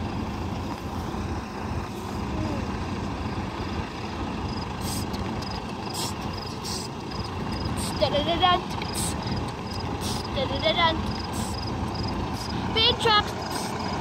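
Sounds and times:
diesel truck engines rumbling: 0:00.0 - 0:14.0.

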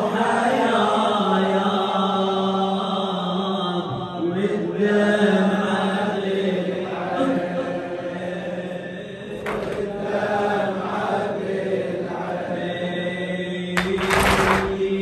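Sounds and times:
man chanting into microphone: 0:00.0 - 0:15.0.

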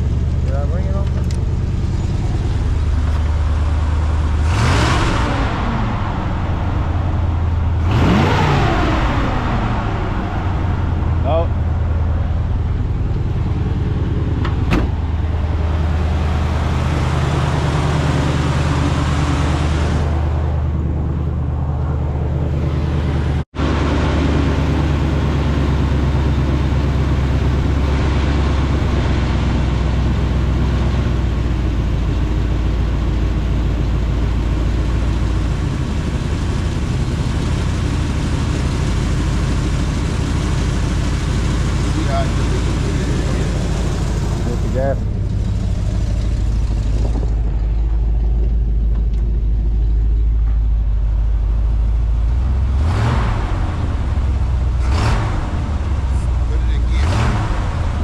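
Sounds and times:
vehicle engine humming: 0:00.0 - 0:58.0.

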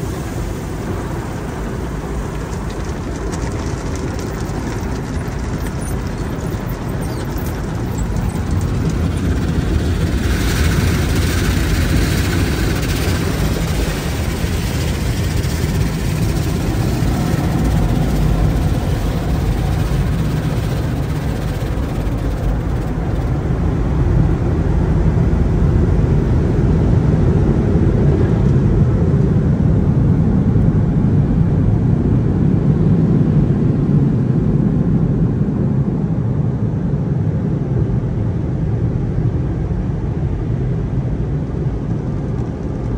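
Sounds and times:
water jets spraying on car: 0:00.0 - 0:23.6
brushes rubbing and slapping car: 0:02.3 - 0:23.3.

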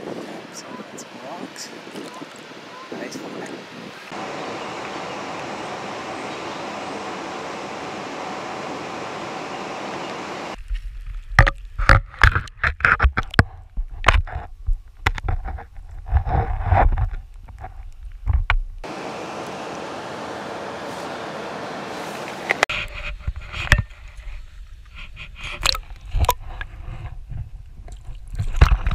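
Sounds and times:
river water rushing: 0:00.0 - 0:10.6, 0:18.8 - 0:22.7.

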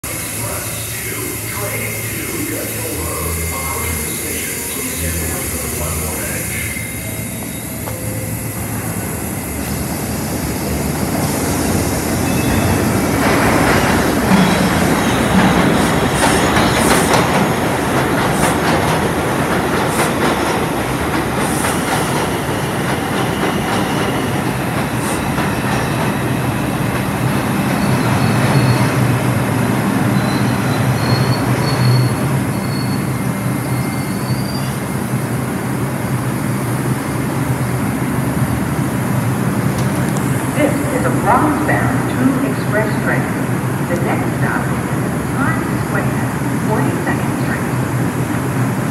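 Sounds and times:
high squeals of wheels and brakes: 0:03.6 - 0:09.8, 0:12.2 - 0:13.1, 0:27.7 - 0:29.1, 0:30.0 - 0:35.0.

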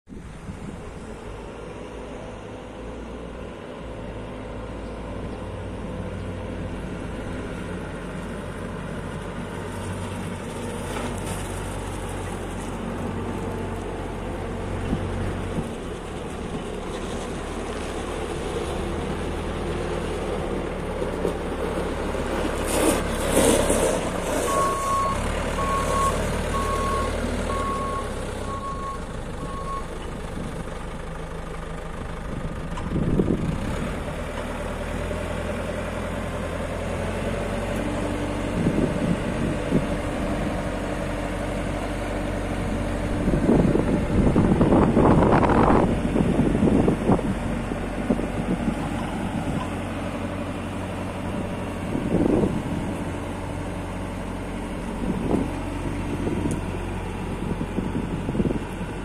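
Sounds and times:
diesel engine running: 0:00.1 - 0:59.0
reversing alarm beeps: 0:24.5 - 0:29.9.

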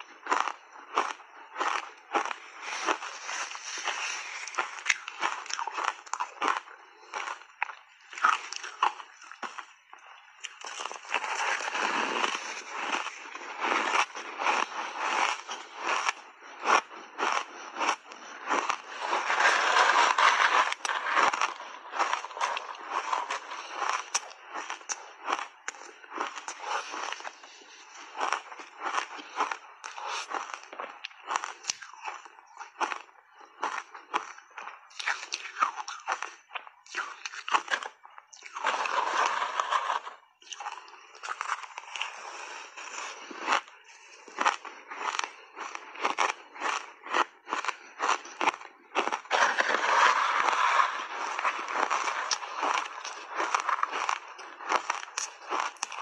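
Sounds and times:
crunchy chewing of ice: 0:00.0 - 0:56.0
metal spoon scraping ice: 0:01.6 - 0:07.3, 0:17.8 - 0:25.0, 0:37.2 - 0:43.7, 0:47.6 - 0:56.0.

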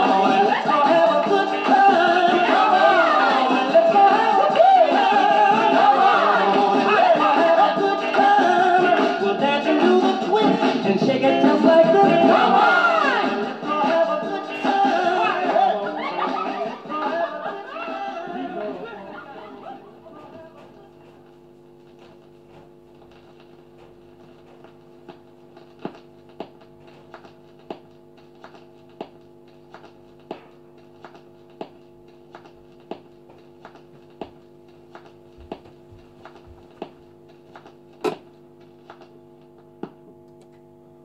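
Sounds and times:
record player electrical hum: 0:00.0 - 0:41.0
stylus clicking in run-out groove: 0:20.6 - 0:40.6.

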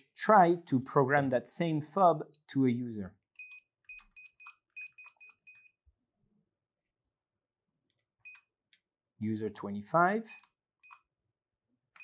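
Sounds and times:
keypad beeps: 0:03.4 - 0:05.8, 0:08.2 - 0:08.5, 0:10.3 - 0:11.1.

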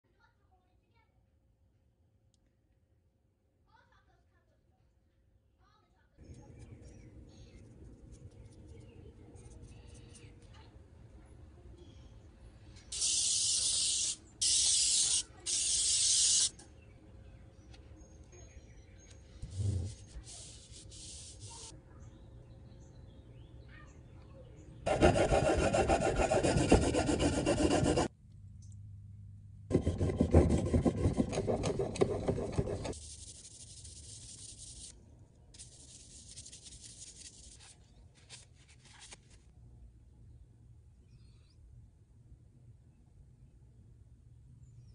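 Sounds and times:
aerosol can spraying hiss: 0:13.0 - 0:16.5, 0:20.3 - 0:21.7
rustling and handling noise: 0:35.6 - 0:39.6.

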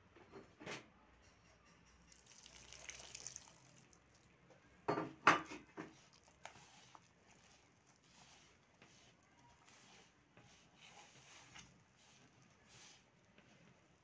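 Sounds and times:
hands mixing dough: 0:02.0 - 0:14.0
water poured into flour: 0:02.1 - 0:04.3.

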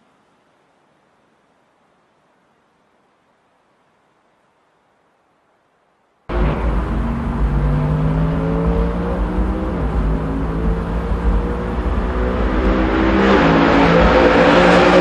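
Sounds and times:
car engine running hard: 0:06.3 - 0:15.0.

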